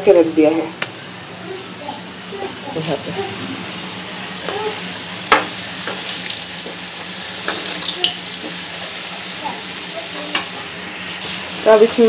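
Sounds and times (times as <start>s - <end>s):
potatoes sizzling in oil: 4.1s - 12.0s.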